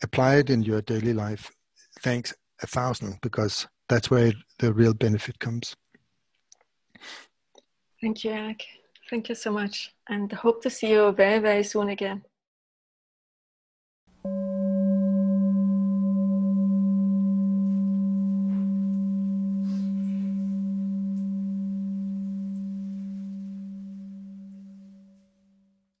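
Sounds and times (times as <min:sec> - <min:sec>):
singing bowl ringing: 0:14.2 - 0:25.8.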